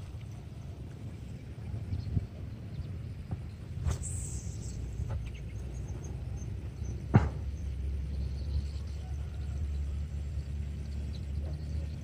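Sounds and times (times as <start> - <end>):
steady low rumble: 0.0 - 12.0
fishing rod whoosh: 3.8 - 4.8.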